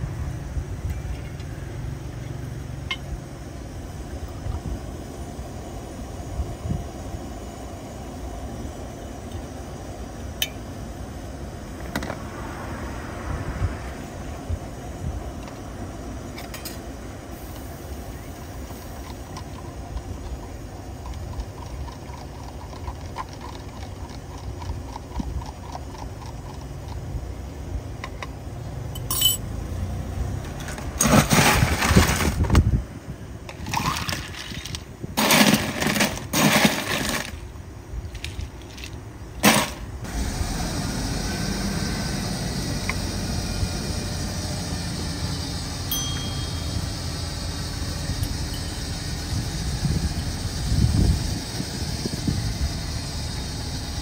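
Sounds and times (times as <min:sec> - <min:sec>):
metal spoon stirring in plastic cup: 0:21.0 - 0:27.0.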